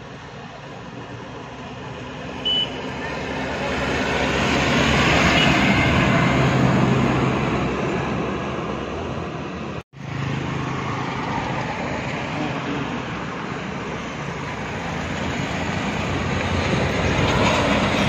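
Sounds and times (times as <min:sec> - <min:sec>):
bus diesel engine: 0:00.0 - 0:18.0
motorcycles passing: 0:00.2 - 0:18.0.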